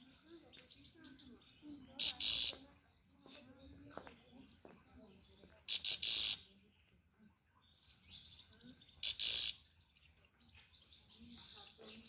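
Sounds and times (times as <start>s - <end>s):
harsh bursts of birdsong: 1.6s - 2.6s, 5.7s - 6.5s, 8.0s - 9.8s.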